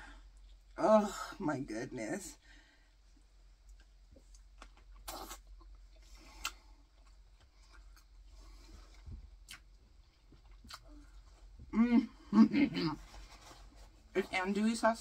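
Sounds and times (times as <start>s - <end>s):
person chewing: 3.6s - 11.6s
mouth clicks and smacks: 3.7s - 8.2s, 9.4s - 10.9s.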